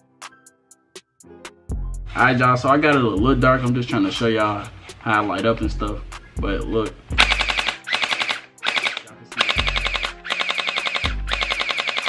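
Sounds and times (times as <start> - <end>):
electric gel blaster firing full auto: 7.2 - 12.0.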